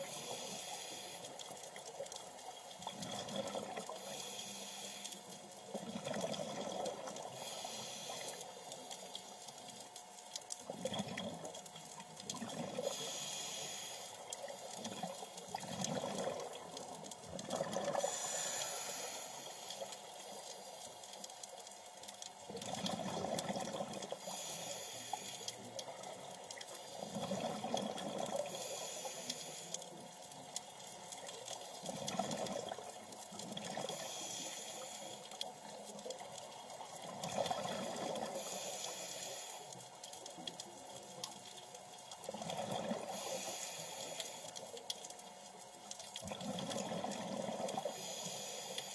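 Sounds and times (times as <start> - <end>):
regulator inhale hiss: 0.0 - 1.6, 3.8 - 5.5, 6.7 - 9.4, 12.8 - 15.6, 17.8 - 21.3, 24.1 - 27.6, 28.2 - 30.0, 33.7 - 36.0, 37.6 - 40.0, 42.9 - 44.7, 47.6 - 48.9
exhaled air bubbling: 0.0 - 41.0, 41.8 - 48.9.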